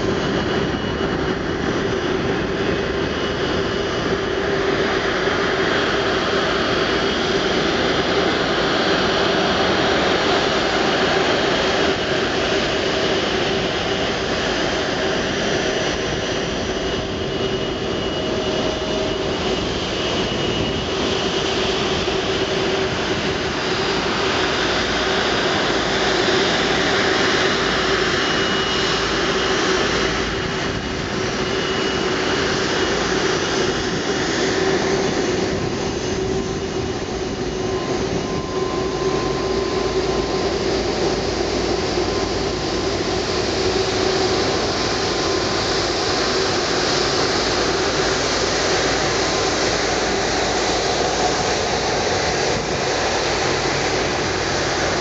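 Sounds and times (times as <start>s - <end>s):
jet engine rush: 0.0s - 55.0s
jet engine whine: 0.0s - 55.0s.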